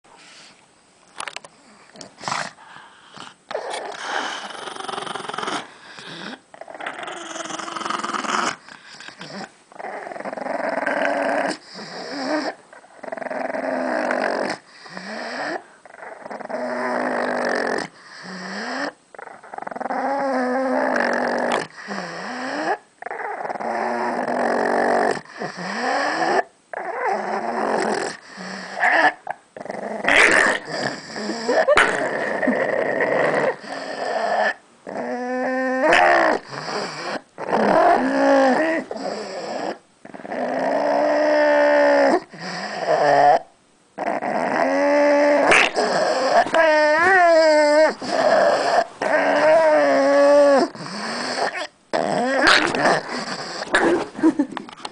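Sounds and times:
dog growling: 1.6s - 54.9s.

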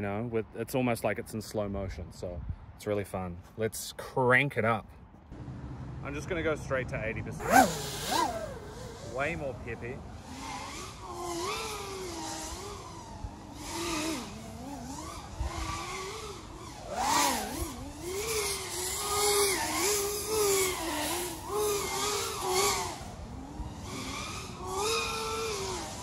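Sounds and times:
drone motors whining: 7.2s - 26.0s.

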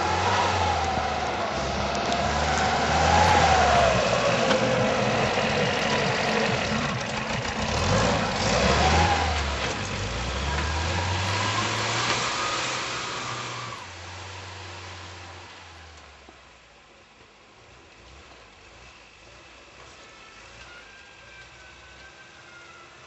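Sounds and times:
truck engine revving: 0.0s - 16.0s.

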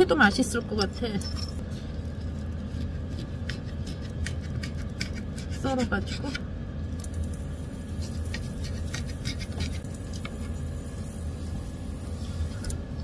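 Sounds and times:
steady low hum: 0.0s - 13.0s
utensil scraping and tapping: 2.7s - 6.4s, 8.0s - 10.5s.

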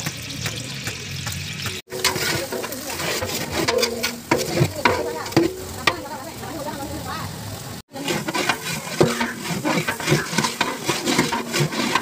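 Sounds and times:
onions sizzling in hot oil: 0.0s - 12.0s
ladle scraping pot: 1.9s - 6.2s, 7.9s - 12.0s.

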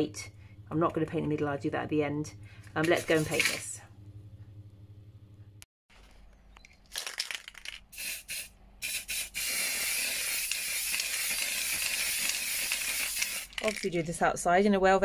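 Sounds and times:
spray paint can hissing: 7.6s - 13.9s.

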